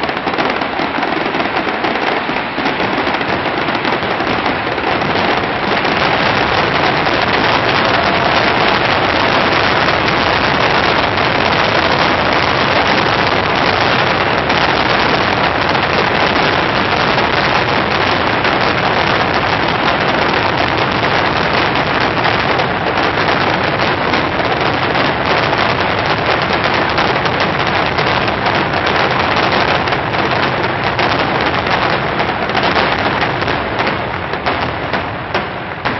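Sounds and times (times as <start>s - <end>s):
fireworks bursts and crackling: 0.0s - 35.9s.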